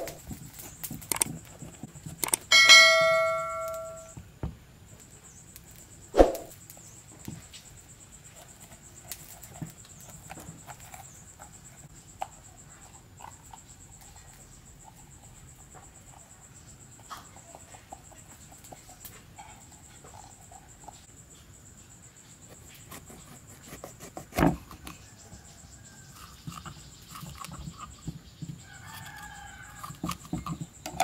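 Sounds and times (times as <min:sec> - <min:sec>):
bell-like ding: 0:02.5 - 0:04.1.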